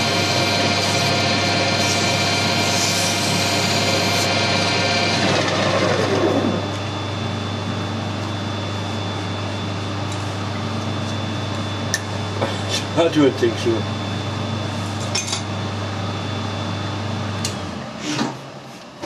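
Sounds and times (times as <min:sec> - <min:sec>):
metal lathe whining: 0:00.0 - 0:06.8.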